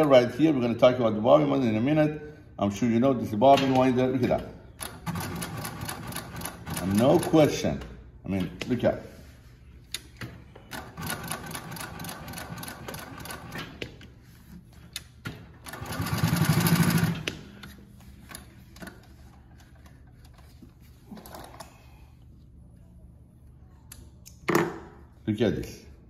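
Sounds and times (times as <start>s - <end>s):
sewing machine stitching: 15.6s - 17.3s.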